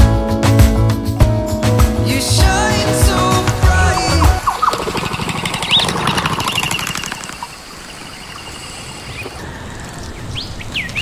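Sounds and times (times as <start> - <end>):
bird calls: 3.7 - 11.0
sweeping whistled bird notes: 3.9 - 11.0.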